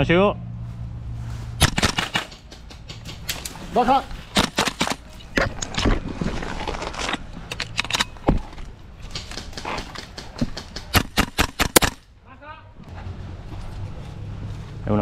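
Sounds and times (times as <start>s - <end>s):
brush rustling: 0.6s - 7.5s.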